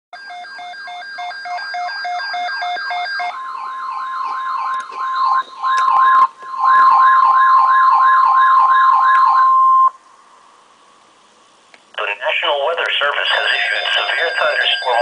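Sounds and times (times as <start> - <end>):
steady high alert tone: 0.4 - 10.0, 13.0 - 15.0
pulsing electronic beeping: 1.0 - 10.0, 13.2 - 15.0
wailing siren-like warble: 1.7 - 9.9.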